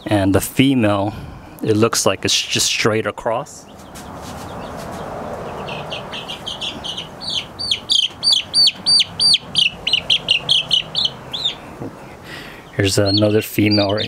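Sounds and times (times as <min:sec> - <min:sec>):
chicks peeping: 0:03.6 - 0:14.0.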